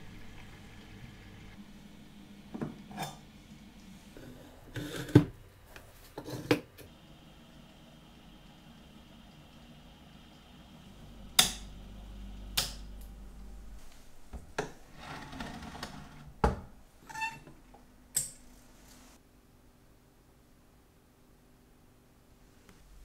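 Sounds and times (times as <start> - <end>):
low machine hum: 0.0 - 4.7, 6.9 - 17.0.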